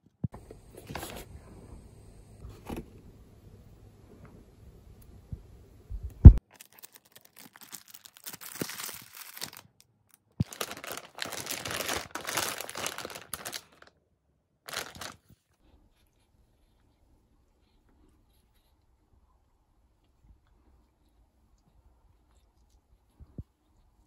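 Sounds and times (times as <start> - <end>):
plastic packaging crinkling: 6.4 - 13.9, 14.7 - 15.3.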